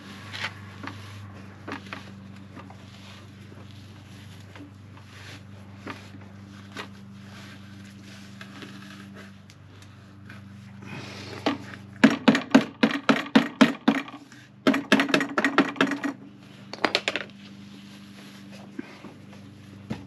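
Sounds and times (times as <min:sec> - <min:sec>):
steady low hum: 0:00.0 - 0:20.0
sharp metallic knocks on muffler: 0:12.0 - 0:16.0.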